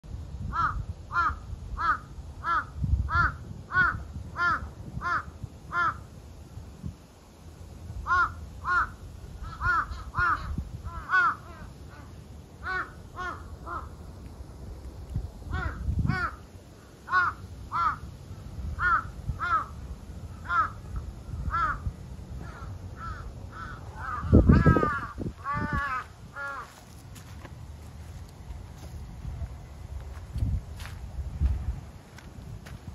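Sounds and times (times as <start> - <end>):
birds calling: 8.0 - 14.2, 15.5 - 27.3.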